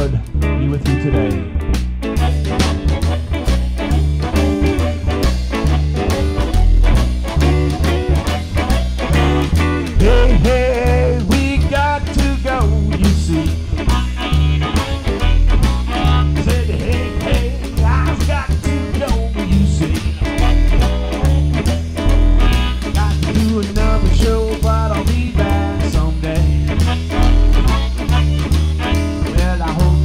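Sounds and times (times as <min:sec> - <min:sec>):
blues band playing: 0:00.0 - 0:30.0
harmonica bending notes: 0:00.0 - 0:30.0
upright bass: 0:00.0 - 0:30.0.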